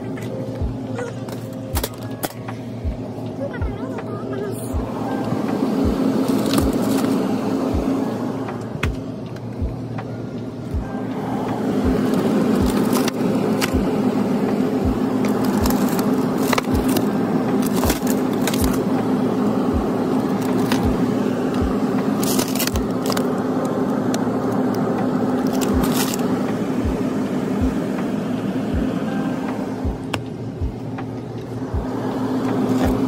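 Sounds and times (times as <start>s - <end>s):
freezer case humming: 0.0s - 33.0s
plastic packet crinkling: 12.1s - 13.8s, 15.1s - 18.9s, 20.2s - 20.9s, 22.1s - 26.3s.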